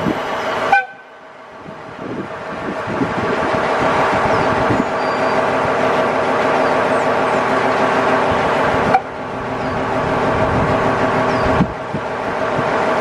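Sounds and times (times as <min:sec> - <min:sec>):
locomotives humming: 0:03.6 - 0:13.0.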